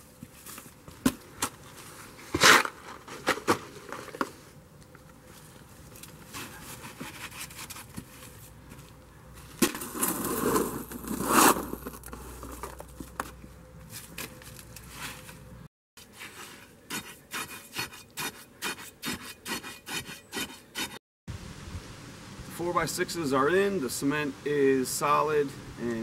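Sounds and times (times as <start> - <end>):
scraping and crunching wet concrete: 0.0 - 4.4, 5.4 - 15.4, 16.0 - 21.0.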